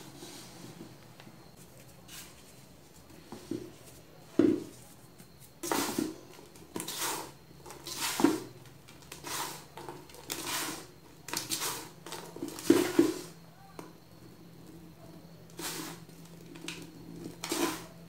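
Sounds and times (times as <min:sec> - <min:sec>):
baking soda crunching: 0:04.7 - 0:13.3, 0:15.5 - 0:17.9.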